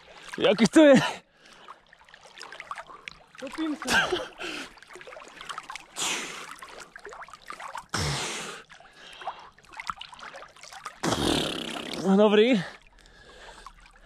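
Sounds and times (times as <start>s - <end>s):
water lapping and trickling: 0.0s - 14.0s
swimmer huffing breaths: 4.0s - 4.8s, 5.9s - 6.8s, 7.9s - 9.6s.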